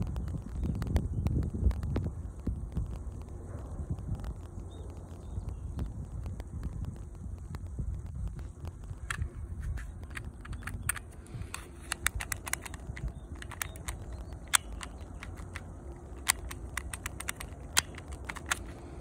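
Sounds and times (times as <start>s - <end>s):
low wind rumble on microphone: 0.0s - 19.0s
airsoft pistol parts clicking: 8.7s - 19.0s.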